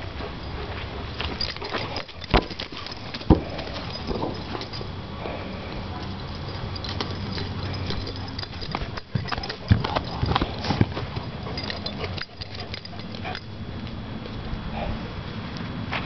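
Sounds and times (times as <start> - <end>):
sharp knocks and thumps: 2.2 - 4.8
dog paws running on dirt: 5.9 - 13.4.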